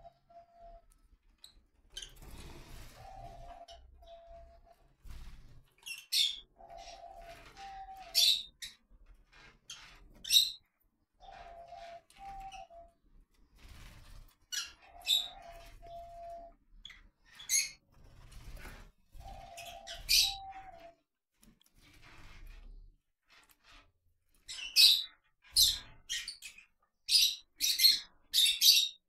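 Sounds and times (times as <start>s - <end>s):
lovebirds shrill calls: 14.6s - 16.5s, 19.2s - 20.8s.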